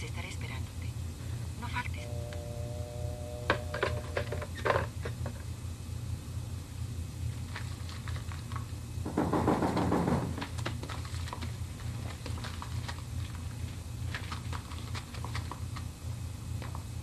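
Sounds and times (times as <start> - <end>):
low steady hum: 0.0 - 17.0
bedding and paper rustling: 7.3 - 16.0.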